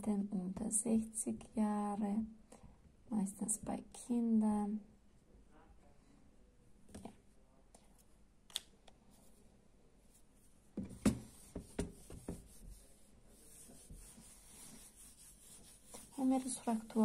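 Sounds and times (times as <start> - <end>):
knocks and thumps against board: 10.8 - 12.5
eraser tapping whiteboard: 10.8 - 12.8.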